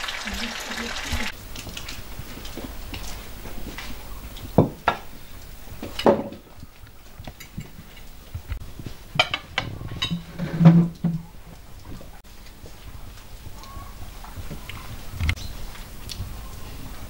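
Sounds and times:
dishes and cutlery clinking: 5.8s - 6.6s, 9.2s - 11.3s.

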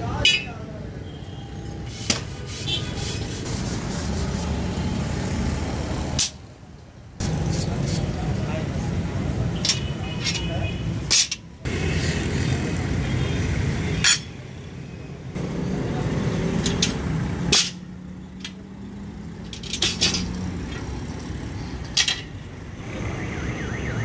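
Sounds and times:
steel leaf springs clanking: 9.6s - 11.5s, 19.4s - 20.9s.

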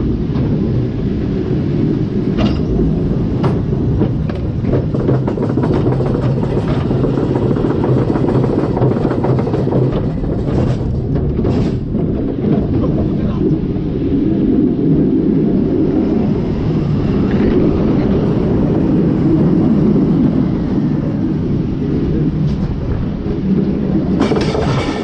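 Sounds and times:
roller coaster rumble: 0.0s - 25.0s
wheels clacking on track: 2.2s - 13.7s, 22.0s - 25.0s.

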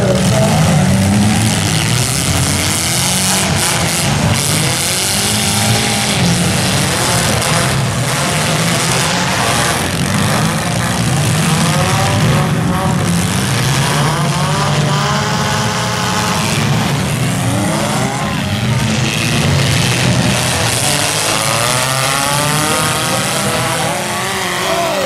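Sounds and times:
car engines revving: 0.0s - 25.0s.

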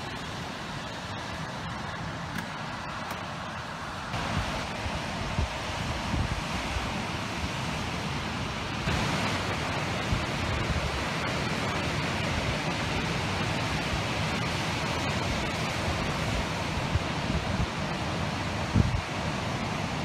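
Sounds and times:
wind rumbling on microphone: 0.0s - 20.0s
surf breaking on beach: 4.2s - 20.0s.

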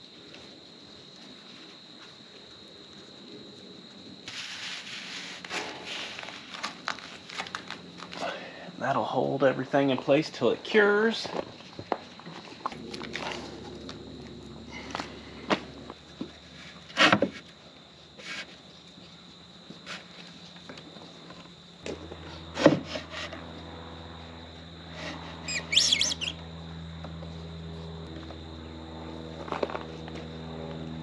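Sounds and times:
low steady hum: 12.5s - 16.1s
birds chirping: 25.5s - 26.4s.

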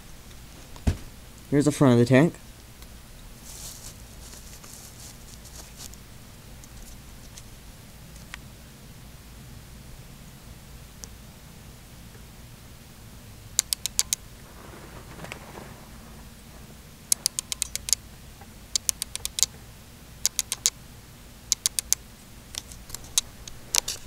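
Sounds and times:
soft rustle: 3.2s - 7.6s, 14.1s - 17.3s
sharp plastic clicks: 13.6s - 14.2s, 17.1s - 18.0s, 18.7s - 19.6s, 20.2s - 20.8s, 21.5s - 24.0s.

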